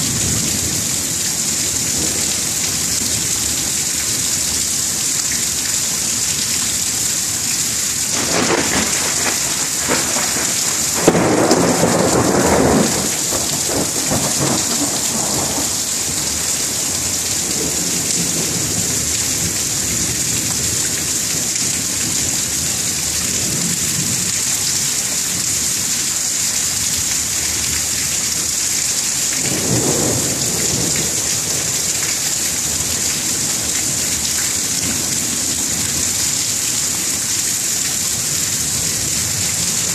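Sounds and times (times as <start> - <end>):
steady rain hissing: 0.0 - 39.9
sharp thunder crack: 8.1 - 16.3
thunder rumbling: 8.1 - 20.5, 29.4 - 34.2.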